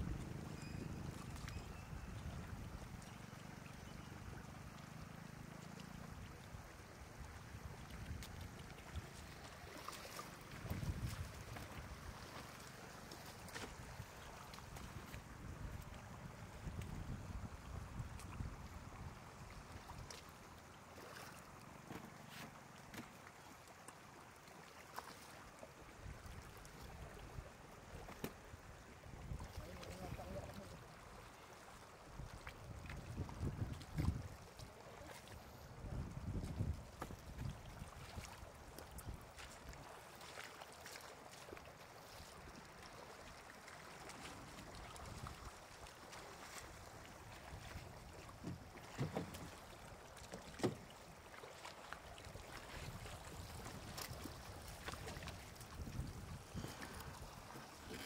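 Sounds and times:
shallow water trickling: 0.6s - 15.2s, 37.7s - 58.0s.

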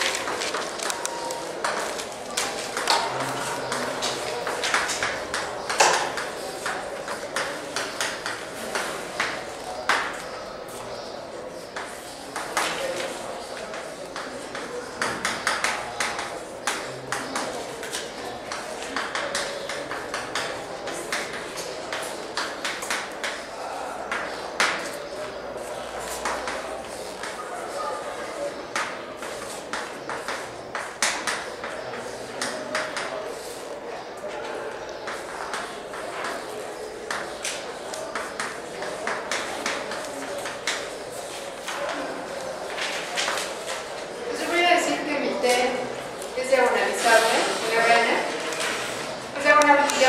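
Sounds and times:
chalk tapping and scratching on blackboard: 3.6s - 10.8s, 11.6s - 23.5s, 25.8s - 27.4s, 28.6s - 33.7s, 35.0s - 42.0s.

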